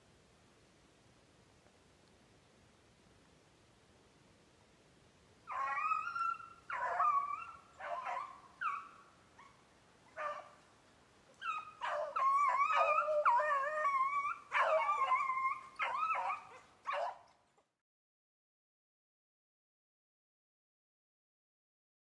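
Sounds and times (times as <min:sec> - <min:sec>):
hounds baying: 0:05.5 - 0:10.6, 0:11.4 - 0:17.4.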